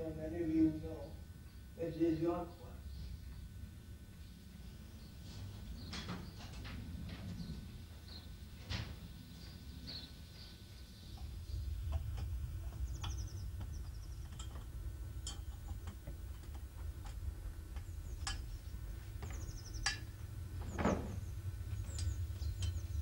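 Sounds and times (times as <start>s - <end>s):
steady low rumble: 0.0s - 23.0s
small bird chirping trills: 7.3s - 8.4s, 9.3s - 23.0s.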